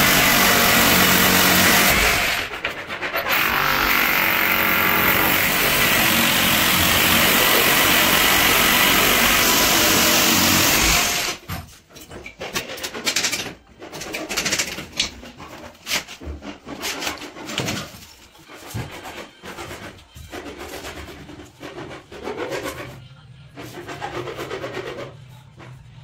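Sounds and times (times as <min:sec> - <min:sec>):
power tool running: 0:00.0 - 0:02.5, 0:03.3 - 0:11.4
knocks and clicks of wood and tools: 0:11.3 - 0:22.8.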